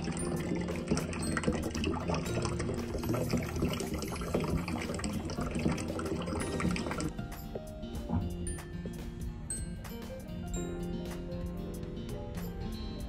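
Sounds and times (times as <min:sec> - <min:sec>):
water pouring into metal pot: 0:00.0 - 0:07.1.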